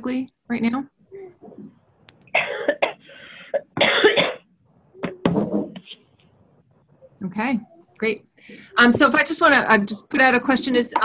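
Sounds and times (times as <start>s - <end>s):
person coughing over telephone: 2.3s - 5.2s.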